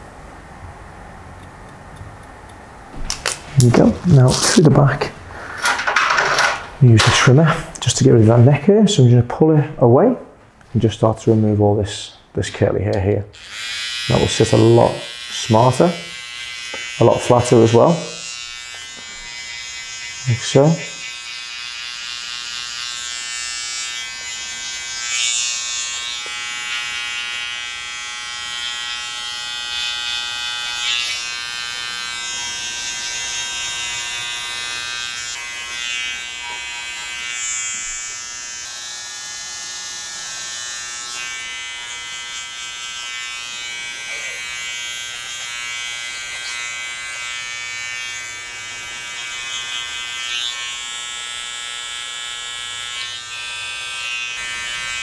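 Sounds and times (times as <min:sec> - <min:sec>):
electric hair trimmer buzzing: 0:13.4 - 0:55.0.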